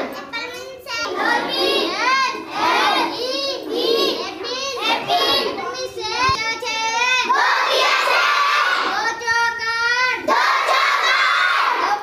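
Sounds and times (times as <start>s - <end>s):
children's voices: 0.0s - 12.0s
child singing high notes: 8.8s - 10.3s.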